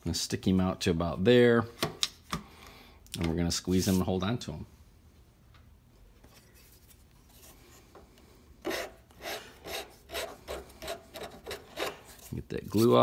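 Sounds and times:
hand file rasping on wood: 8.6 - 12.3.

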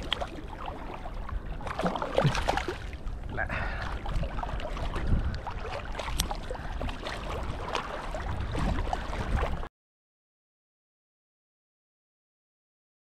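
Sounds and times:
water splashing and sloshing: 0.0 - 9.7
wind rumble on microphone: 0.0 - 9.7.

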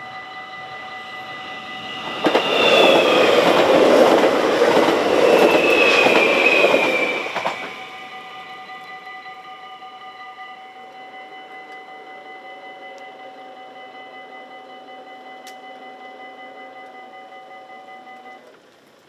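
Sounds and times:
level crossing warning bell: 0.0 - 18.5.

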